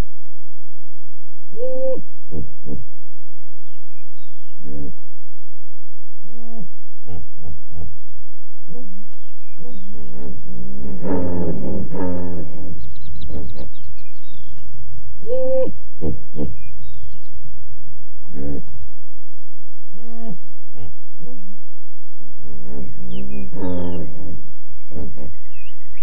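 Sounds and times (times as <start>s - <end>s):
hippopotamuses calling: 8.8s - 14.3s.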